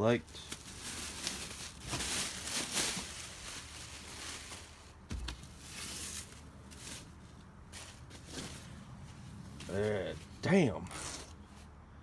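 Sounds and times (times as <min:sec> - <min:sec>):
plastic wrap and foam crinkling: 0:00.0 - 0:08.7.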